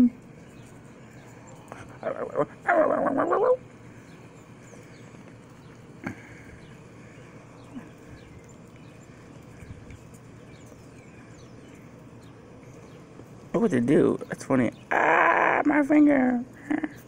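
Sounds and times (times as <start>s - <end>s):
small dog whimpering: 1.9s - 3.6s.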